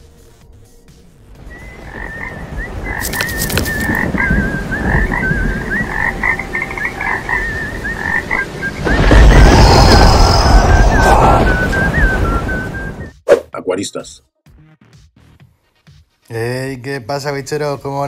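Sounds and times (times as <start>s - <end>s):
frogs croaking: 1.5s - 9.2s
high chirping calls: 1.5s - 9.3s.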